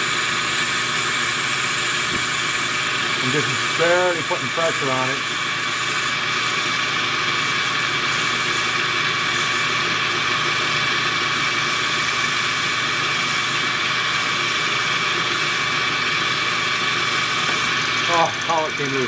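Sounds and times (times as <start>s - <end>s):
file grinding on spinning glass: 0.0s - 19.0s
lathe whine: 0.0s - 19.0s.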